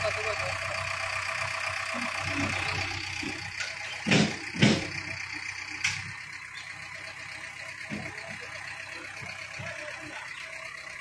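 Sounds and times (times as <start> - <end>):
diesel engine running: 0.0 - 11.0
loud thumps: 3.2 - 5.1.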